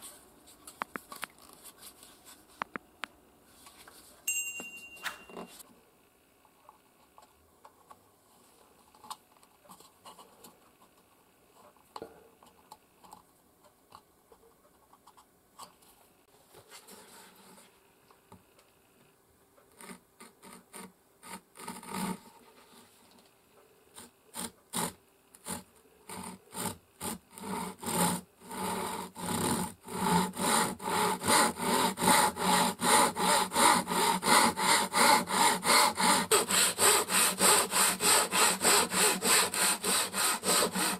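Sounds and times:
hand saw cutting wood: 0:19.8 - 0:22.2, 0:24.3 - 0:40.9.

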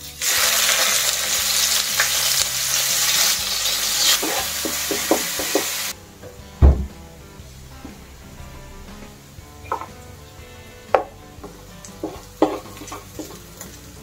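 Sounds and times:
onions sizzling in hot oil: 0:00.0 - 0:06.0, 0:11.6 - 0:14.0
spatula tapping and scraping pan: 0:04.2 - 0:05.8, 0:11.0 - 0:13.7.

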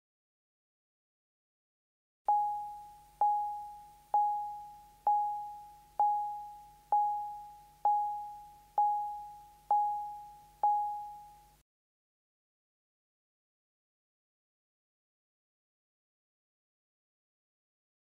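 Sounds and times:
chime-like indicator beep: 0:02.3 - 0:11.5.

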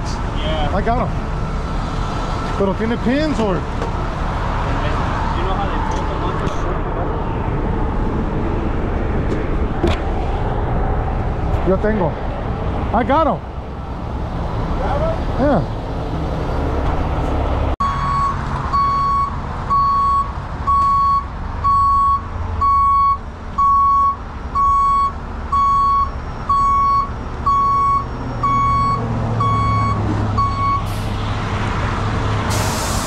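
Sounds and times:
truck backup alarm beeping: 0:17.8 - 0:31.1
air hiss: 0:32.5 - 0:33.0.

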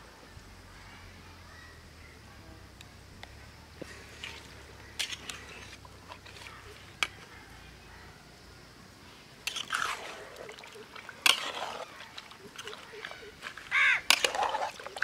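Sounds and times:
spatula squelching and scraping: 0:03.8 - 0:07.3, 0:09.4 - 0:15.0.

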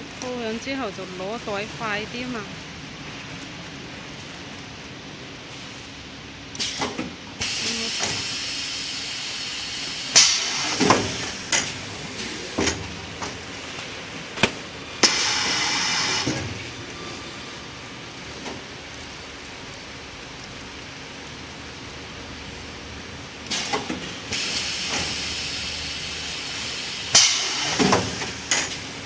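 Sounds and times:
steady background hiss: 0:00.0 - 0:29.0
machine hissing bursts: 0:06.6 - 0:12.8, 0:14.4 - 0:16.6, 0:23.5 - 0:29.0.

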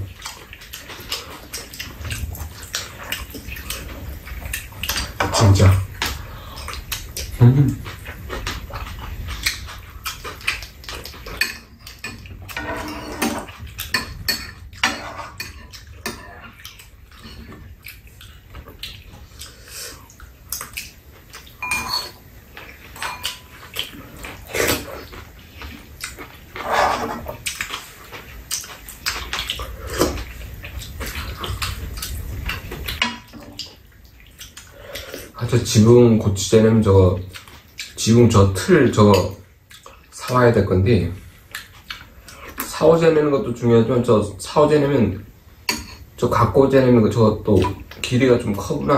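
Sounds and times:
chewing and slurping: 0:00.0 - 0:35.4, 0:37.2 - 0:38.1, 0:39.4 - 0:40.4, 0:41.2 - 0:42.8
utensils clinking on bowls: 0:21.6 - 0:22.2, 0:22.9 - 0:23.7, 0:45.7 - 0:46.1.

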